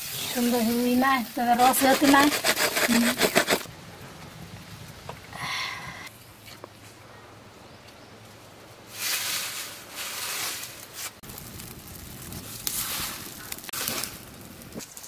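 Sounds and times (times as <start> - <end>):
hissing crackling bursts: 0.0 - 3.7, 8.9 - 15.0
wood fire crackling: 0.0 - 7.1, 7.8 - 15.0.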